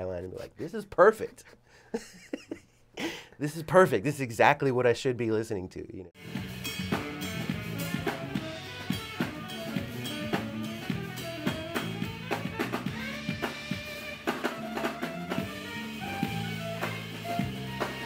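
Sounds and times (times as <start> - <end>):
drum kit beat: 6.2 - 18.0
electric bass: 6.2 - 18.0
tenor saxophone lead: 7.6 - 18.0.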